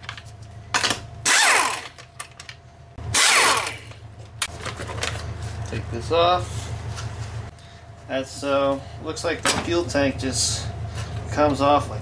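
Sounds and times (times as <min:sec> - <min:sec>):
ratchet whirring: 0:01.2 - 0:02.0, 0:03.0 - 0:04.0.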